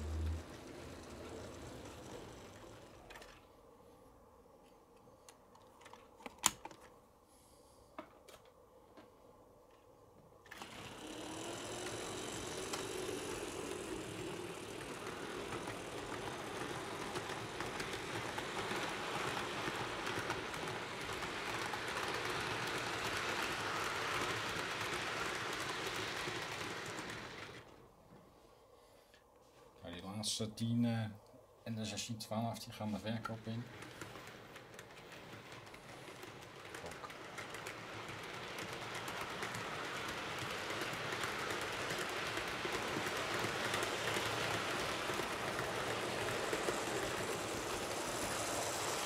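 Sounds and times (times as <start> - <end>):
model train motor whirring: 0.0 - 3.4, 10.5 - 27.8, 33.2 - 49.0.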